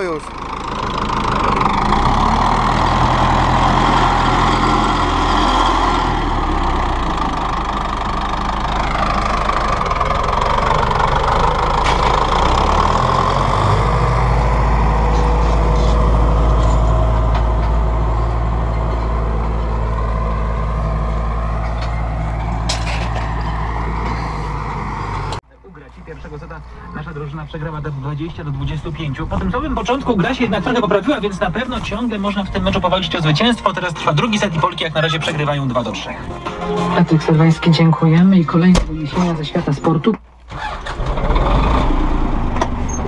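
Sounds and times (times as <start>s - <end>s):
tractor engine running: 0.0s - 43.0s.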